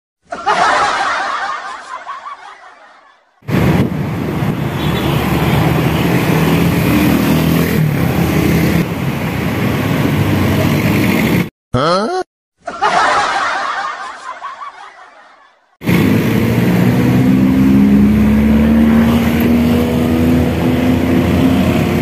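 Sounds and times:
motorcycle and car engines passing: 0:03.4 - 0:11.5, 0:15.8 - 0:22.0
road noise: 0:03.4 - 0:11.5, 0:15.8 - 0:22.0.

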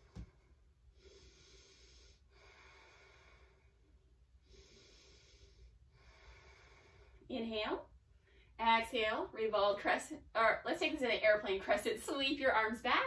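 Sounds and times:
slow breathing: 0:00.0 - 0:07.3.

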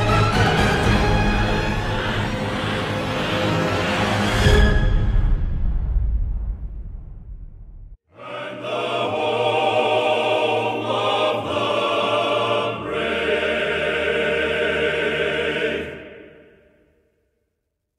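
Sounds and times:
choir singing sustained chords: 0:00.0 - 0:05.2, 0:08.1 - 0:16.9.

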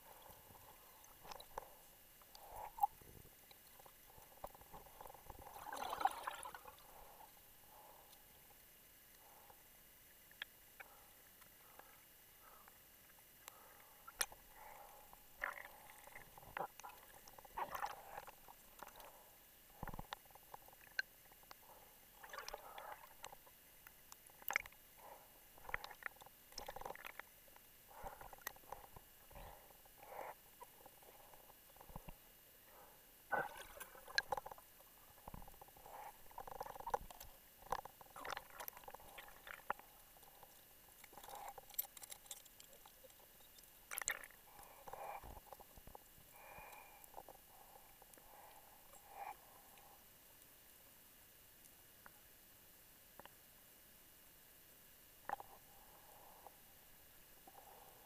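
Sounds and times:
rebreather gurgling bursts: 0:05.1 - 0:07.2
muffled underwater clicks and knocks: 0:33.4 - 0:46.0.

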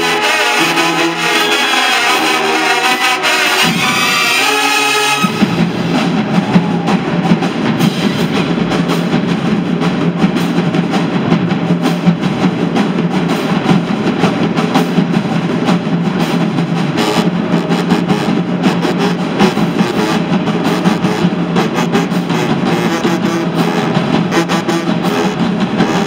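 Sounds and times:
brass playing held phrase: 0:00.0 - 0:05.6, 0:19.8 - 0:26.0
drumline percussion cadence: 0:00.0 - 0:26.0.

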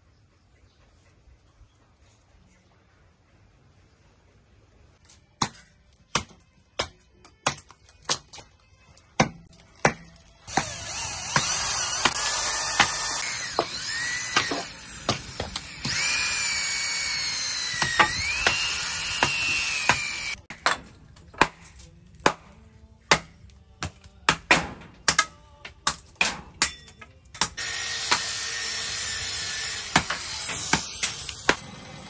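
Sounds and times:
electric drill boring into wood: 0:10.5 - 0:20.4, 0:27.6 - 0:32.0.

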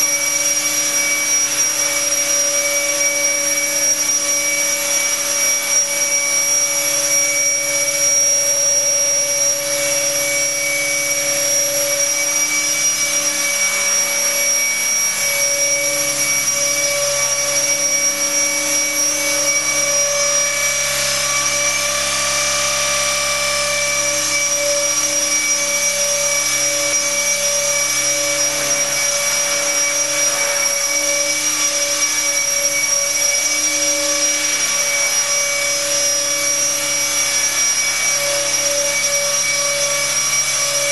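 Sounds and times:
electric motor whine: 0:00.0 - 0:40.9
rotor blades whirring: 0:10.9 - 0:40.9.

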